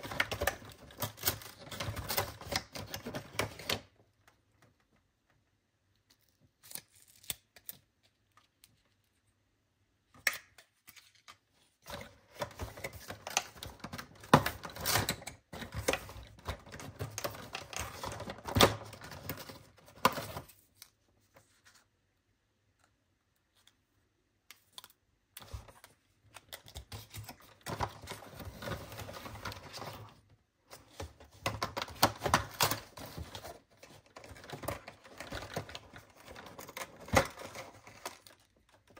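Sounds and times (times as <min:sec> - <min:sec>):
cardboard and paper handling: 0:10.8 - 0:22.0, 0:24.7 - 0:38.9.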